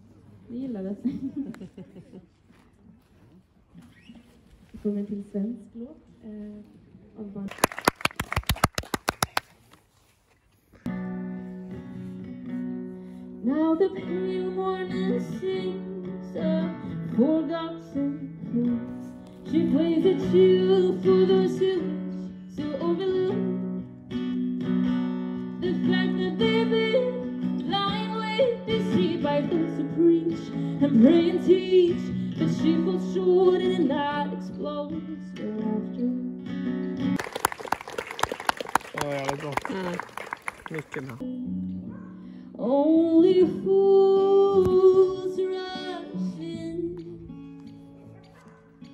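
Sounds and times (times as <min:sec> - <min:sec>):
applause: 0:07.5 - 0:09.8, 0:37.2 - 0:41.2
woman singing: 0:13.4 - 0:23.7, 0:25.5 - 0:36.5, 0:41.2 - 0:47.4.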